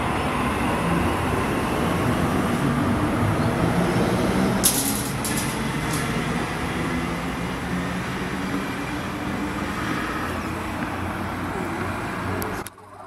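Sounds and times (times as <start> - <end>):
train wheels rumbling on rail: 0.0 - 12.6.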